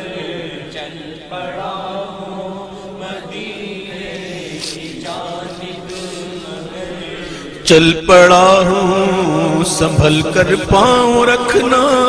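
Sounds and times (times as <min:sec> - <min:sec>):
person chanting devotional song: 0:00.0 - 0:12.0.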